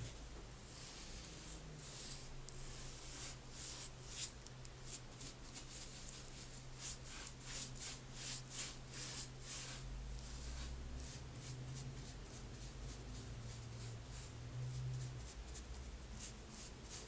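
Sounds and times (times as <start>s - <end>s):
paintbrush swishing on wood: 0.7s - 4.3s, 4.9s - 17.0s.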